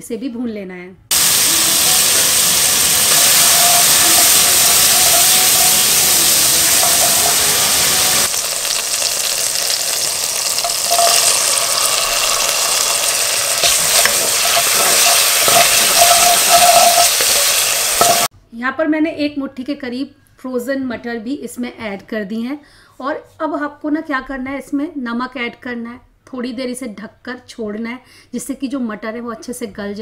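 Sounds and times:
food sizzling in a pan: 0:01.1 - 0:18.3
wooden spatula scraping: 0:09.6 - 0:18.3.

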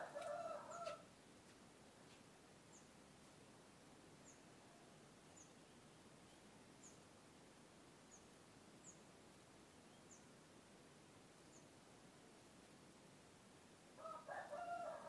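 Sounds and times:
background hiss: 0:00.0 - 0:15.0
small bird chirping: 0:05.3 - 0:07.1, 0:08.0 - 0:10.4.

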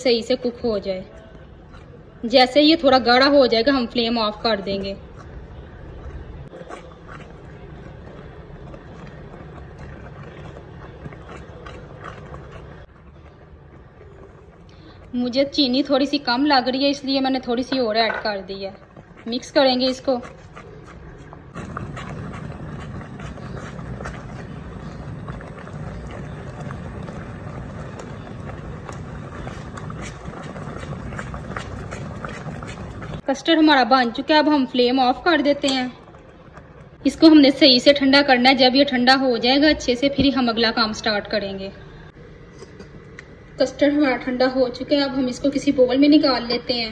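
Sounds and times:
thick mixture bubbling: 0:00.0 - 0:46.9
spoon scraping a pot: 0:04.7 - 0:15.1, 0:17.6 - 0:33.2
gas flame rumble: 0:21.2 - 0:33.3.

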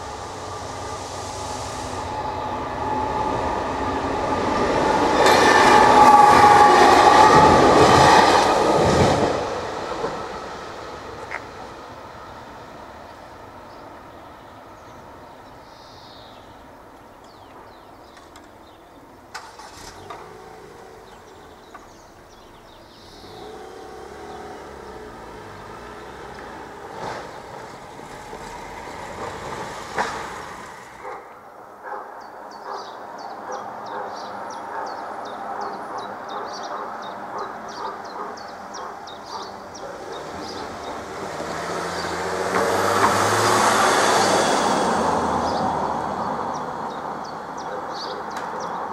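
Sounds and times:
cars passing: 0:00.0 - 0:48.9
crossing warning bell ringing: 0:02.2 - 0:08.3.

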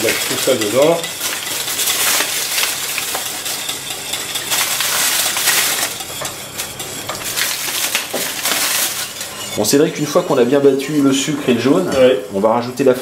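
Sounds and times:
foil wrapper crinkling: 0:00.0 - 0:09.4.

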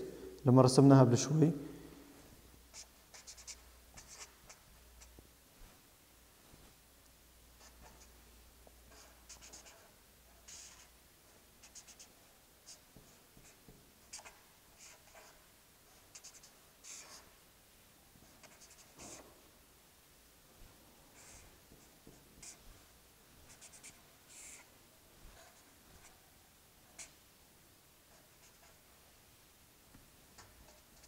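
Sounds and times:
marker pen squeaking on paper: 0:10.5 - 0:10.9, 0:23.5 - 0:24.7.

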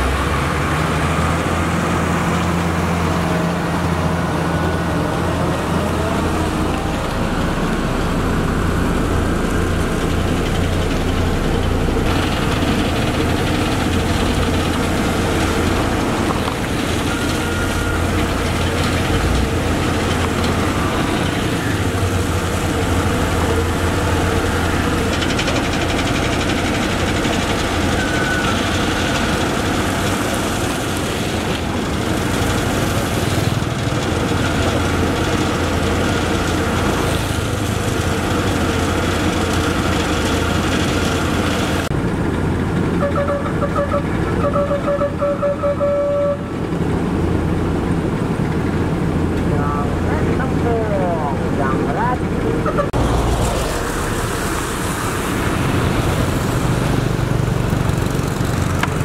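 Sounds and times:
heavy diesel machinery running: 0:00.0 - 0:59.0.

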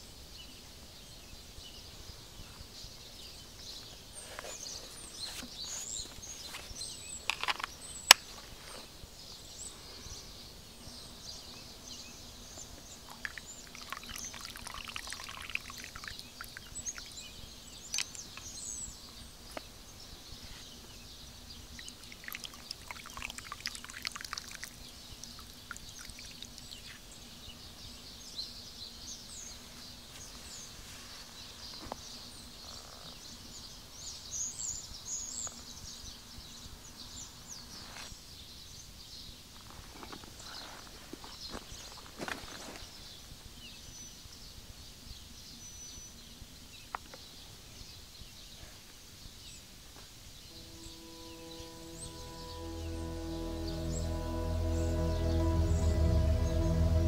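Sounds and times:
songbirds chirping: 0:00.0 - 0:57.0
rustling noise: 0:03.8 - 0:09.0, 0:29.6 - 0:32.2.

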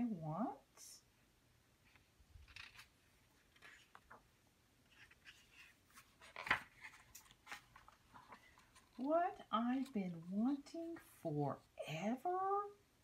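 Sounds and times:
book page turning: 0:01.8 - 0:11.2
paper rustling: 0:01.8 - 0:11.2.

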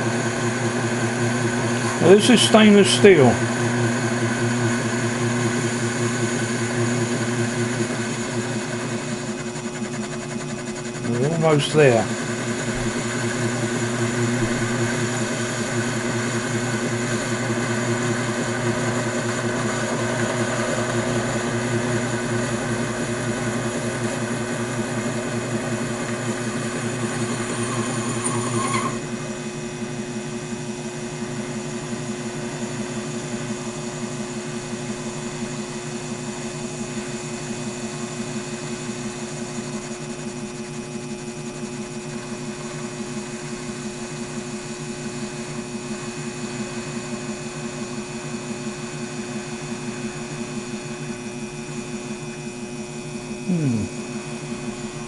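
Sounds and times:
lathe running: 0:00.0 - 0:29.6, 0:38.8 - 0:47.6
high whine: 0:11.0 - 0:12.3.

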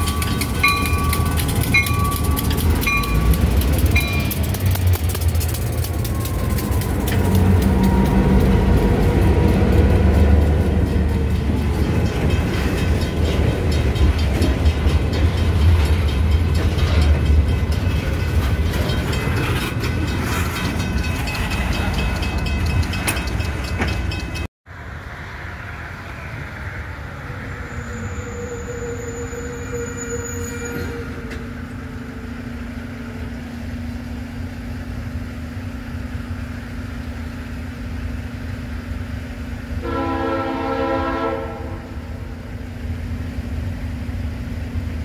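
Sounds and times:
locomotive bell ringing: 0:00.0 - 0:04.8, 0:10.1 - 0:24.5
train wheels clicking over rail joints: 0:00.0 - 0:24.5
diesel locomotive engine rumble: 0:00.0 - 0:45.0
high wheel squeal: 0:27.1 - 0:31.8.

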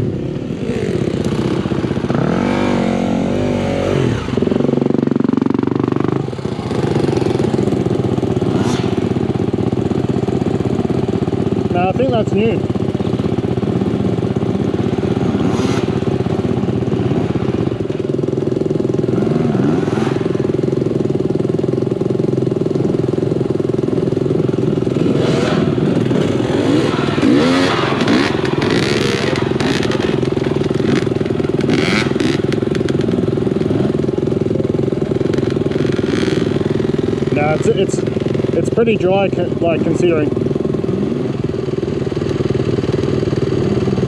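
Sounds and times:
dirt bike engine running: 0:00.0 - 0:44.0
clatter: 0:12.6 - 0:44.0.

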